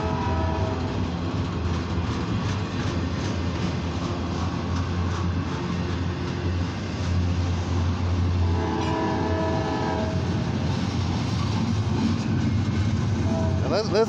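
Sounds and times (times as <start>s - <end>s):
locomotive horn: 0.0s - 0.9s, 8.4s - 10.4s, 13.2s - 14.0s
freight train rumbling on rails: 0.0s - 14.0s.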